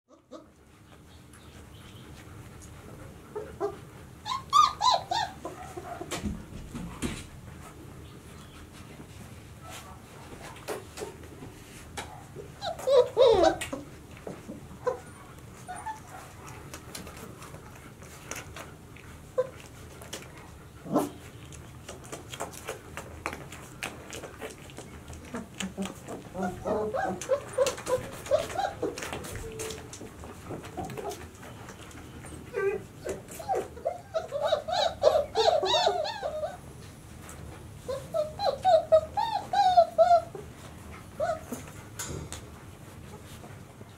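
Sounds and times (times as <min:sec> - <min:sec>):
puppies yipping: 0:03.3 - 0:06.1, 0:12.1 - 0:13.8, 0:14.8 - 0:17.0, 0:21.9 - 0:36.8, 0:37.9 - 0:40.6, 0:41.2 - 0:41.7
puppy squeal: 0:04.2 - 0:05.5, 0:12.6 - 0:13.7, 0:26.4 - 0:29.8, 0:32.5 - 0:36.6, 0:37.9 - 0:40.4.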